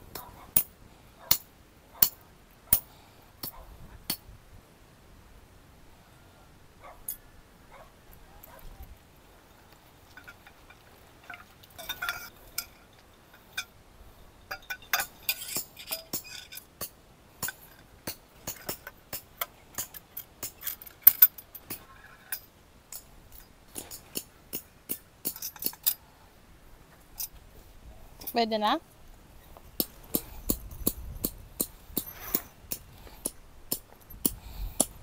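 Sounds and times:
small hard objects clinking: 0:10.0 - 0:13.7.

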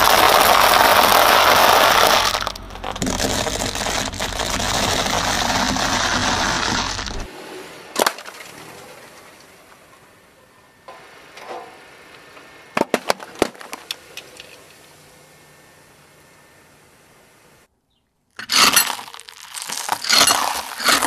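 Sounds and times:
car tyre crushing dry pasta: 0:00.0 - 0:07.3, 0:18.3 - 0:21.0.

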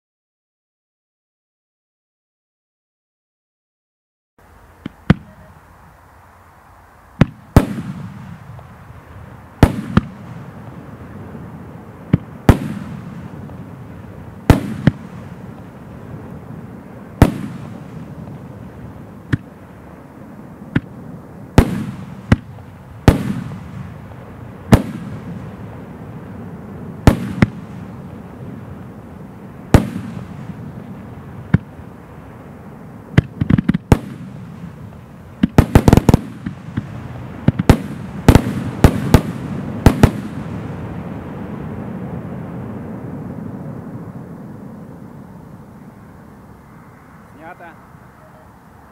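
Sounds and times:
fireworks bangs with low rumble: 0:04.6 - 0:06.0, 0:06.7 - 0:46.0.

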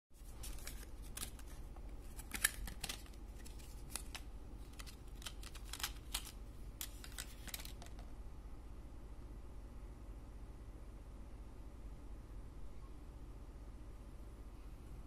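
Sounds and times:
low steady hum: 0:00.1 - 0:15.0
plastic tray clicking and crackling: 0:02.1 - 0:08.0.

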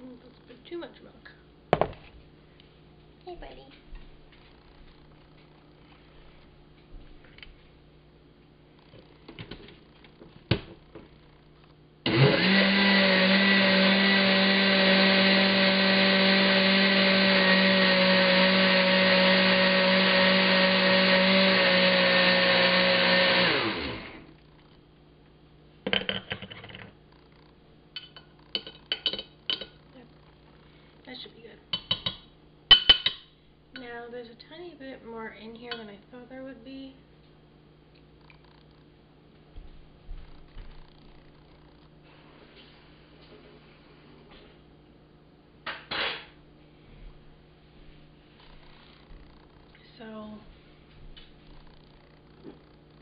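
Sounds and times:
blender motor running: 0:12.0 - 0:24.4.

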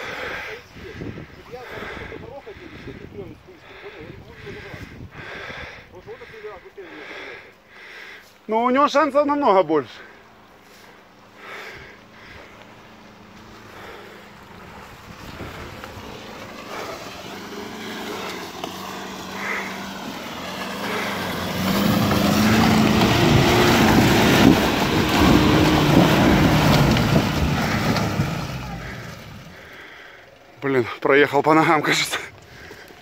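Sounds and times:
truck engine revving under load: 0:10.0 - 0:30.6.

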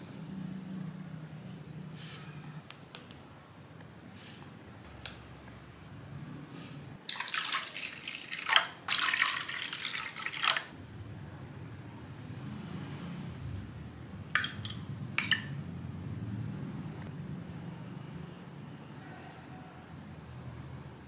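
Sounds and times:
water pouring into bowl: 0:07.1 - 0:10.7, 0:14.4 - 0:15.5.

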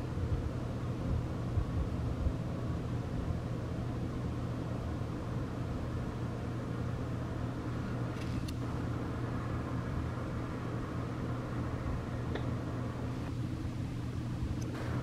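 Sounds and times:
distant road traffic rumble: 0:00.0 - 0:15.0.

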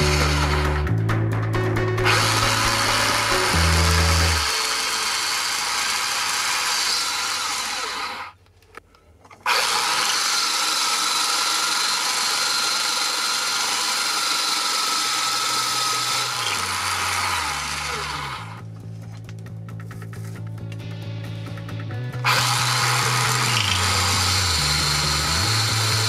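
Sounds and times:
drill bit cutting: 0:00.0 - 0:00.9, 0:02.0 - 0:08.4, 0:09.5 - 0:18.6, 0:22.2 - 0:26.0
drill press motor whine: 0:00.0 - 0:00.9, 0:02.0 - 0:08.4, 0:09.4 - 0:18.6, 0:22.2 - 0:26.0.

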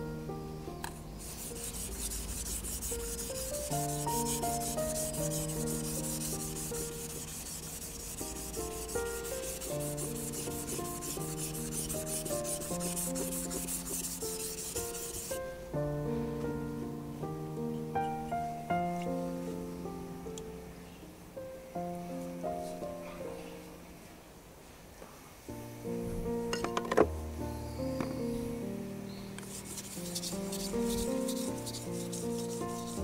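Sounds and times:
soft background music: 0:00.0 - 0:23.7, 0:25.5 - 0:33.0
knife scraping on whetstone: 0:01.2 - 0:15.4, 0:29.4 - 0:33.0.

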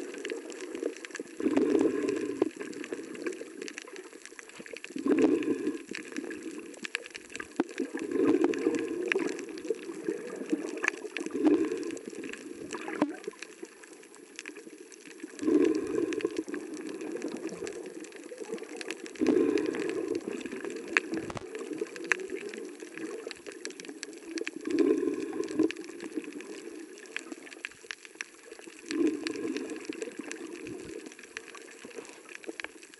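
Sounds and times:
snorkel breathing underwater: 0:00.0 - 0:03.4, 0:04.6 - 0:06.7, 0:07.8 - 0:12.9, 0:15.2 - 0:17.6, 0:19.0 - 0:23.2, 0:24.4 - 0:27.1, 0:28.8 - 0:31.1
small clicks and crackles: 0:00.0 - 0:32.9.

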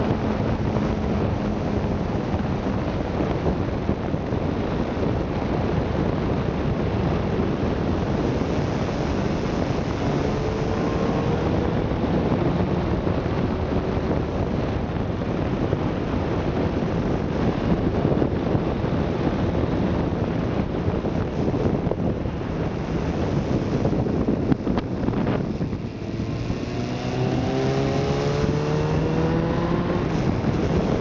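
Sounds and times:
motorcycle engine running: 0:00.0 - 0:31.0
wind rushing over microphone: 0:00.0 - 0:31.0.

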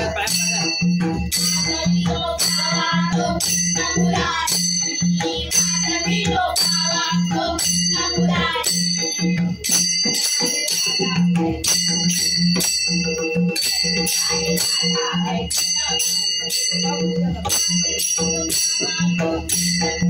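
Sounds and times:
hand cymbals clashing: 0:00.0 - 0:20.0
women singing: 0:01.4 - 0:09.3, 0:10.4 - 0:12.2, 0:13.6 - 0:16.4.

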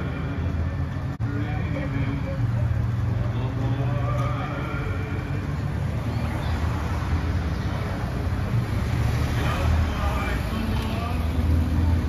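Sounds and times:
motor vehicles rumbling: 0:00.0 - 0:12.0
motorcycle and cars passing: 0:00.0 - 0:12.0
murmur of voices: 0:00.0 - 0:12.0.

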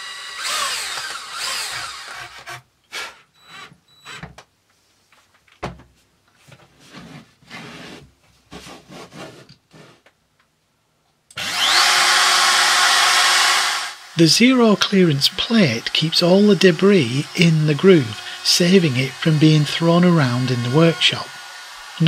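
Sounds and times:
electric drill spinning down: 0:00.0 - 0:02.5, 0:11.4 - 0:14.6, 0:15.2 - 0:22.0
router motor whining: 0:00.0 - 0:02.6, 0:11.4 - 0:22.0.

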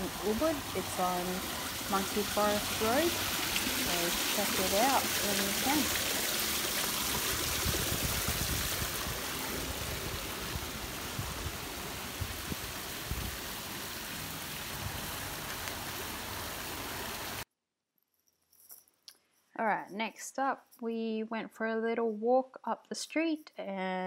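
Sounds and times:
rain falling on water and stone: 0:00.0 - 0:17.4.

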